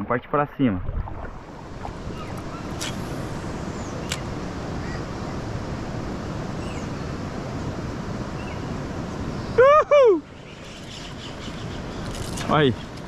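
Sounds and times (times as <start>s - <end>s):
wind rumble on microphone: 0.6s - 9.8s
water rushing along kayak hull: 0.9s - 3.7s
faint bird chirps: 2.1s - 2.9s, 6.6s - 7.1s.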